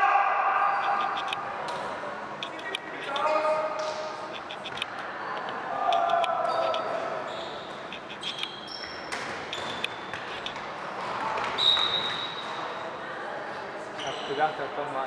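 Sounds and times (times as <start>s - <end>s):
players' voices in echoing hall: 0.0s - 15.0s
shoe squeaks on hall floor: 6.4s - 10.5s, 11.4s - 12.7s, 13.9s - 14.8s.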